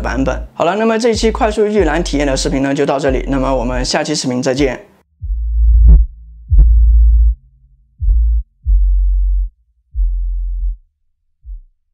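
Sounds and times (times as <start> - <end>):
electronic music deep bass notes: 1.2 - 3.9, 5.1 - 11.8.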